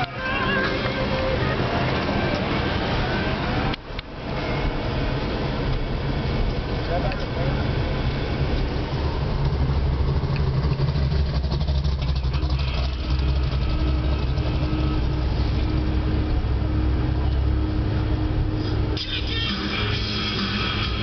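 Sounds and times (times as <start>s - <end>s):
car engine and road rumble: 0.0s - 21.0s.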